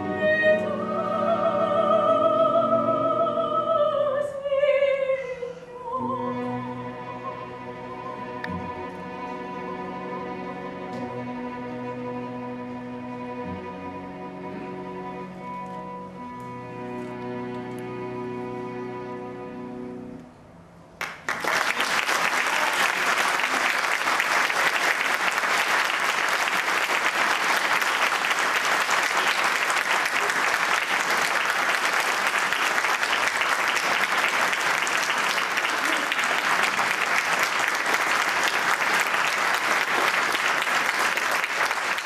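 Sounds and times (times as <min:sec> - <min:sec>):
choir and strings chord: 0:00.0 - 0:04.7, 0:05.8 - 0:20.2
audience applause: 0:21.0 - 0:42.0.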